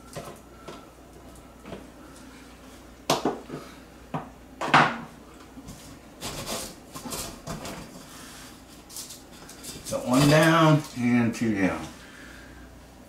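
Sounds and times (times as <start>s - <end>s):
fixture scraping and rubbing: 5.7s - 10.9s.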